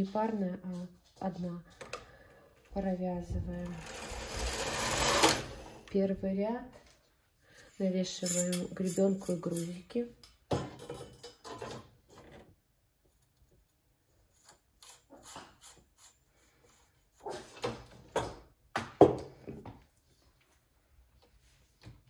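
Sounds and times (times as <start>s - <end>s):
clicks and knocks of knitting machine: 3.6s - 5.8s.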